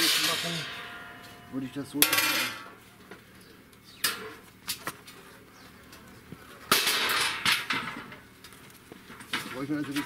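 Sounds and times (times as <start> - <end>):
steel plates clanking: 0.0 - 2.8.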